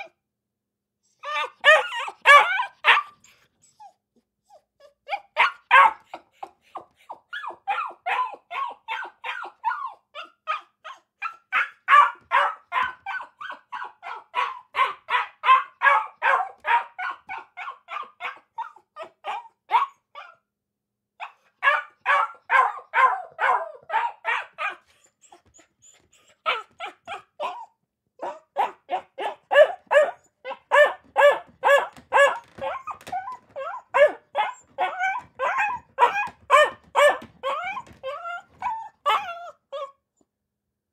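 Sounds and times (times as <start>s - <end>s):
dog barking rapidly: 1.6s - 3.2s, 5.4s - 6.2s, 11.2s - 18.5s, 21.3s - 24.8s, 28.2s - 37.9s.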